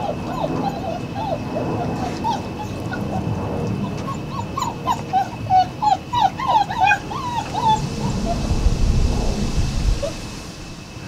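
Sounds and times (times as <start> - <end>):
puppies yipping and whimpering: 0.0 - 8.6.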